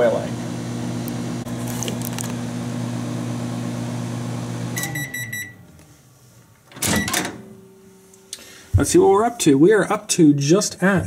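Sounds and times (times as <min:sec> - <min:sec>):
microwave oven humming: 0:00.0 - 0:05.8
short high beeps: 0:04.8 - 0:05.6.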